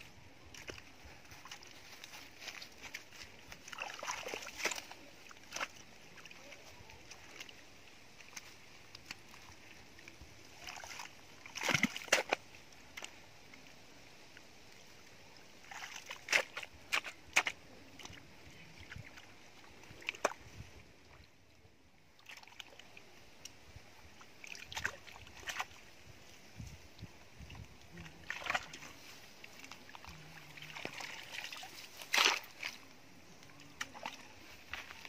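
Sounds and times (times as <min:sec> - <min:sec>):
spade digging wet mud: 0:10.7 - 0:12.4, 0:15.7 - 0:18.1, 0:29.7 - 0:32.9.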